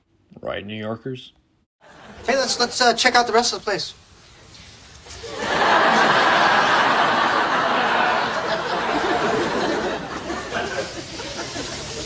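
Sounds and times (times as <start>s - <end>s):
studio audience laughing: 1.8s - 2.5s, 5.2s - 12.0s.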